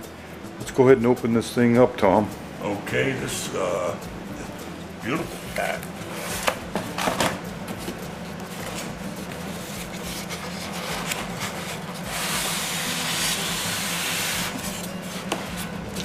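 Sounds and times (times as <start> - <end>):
cardboard rubbing and scraping: 7.7 - 15.8
styrofoam sliding against cardboard: 9.4 - 15.6.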